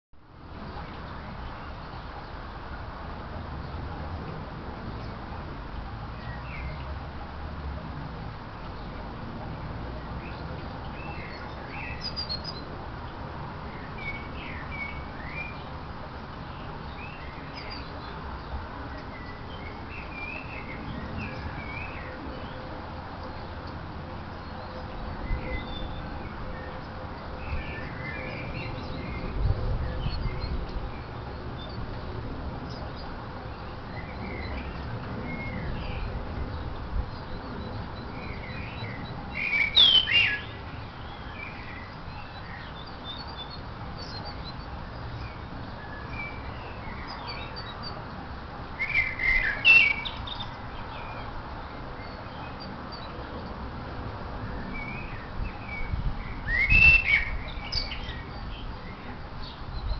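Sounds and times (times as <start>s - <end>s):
songbirds chirping: 0.2s - 59.9s.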